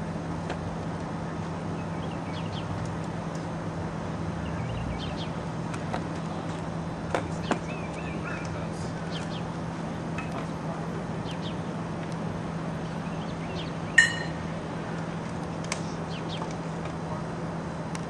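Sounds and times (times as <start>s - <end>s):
steady low hum: 0.0s - 18.0s
bird chirps: 1.8s - 2.7s, 7.4s - 9.5s, 12.8s - 14.4s
sharp metallic clink: 14.0s - 14.4s.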